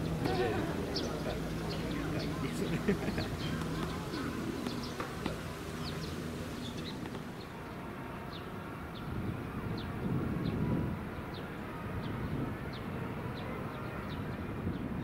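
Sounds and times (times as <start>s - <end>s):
small birds chirping: 0.0s - 7.7s
low outdoor rumble: 0.0s - 8.3s.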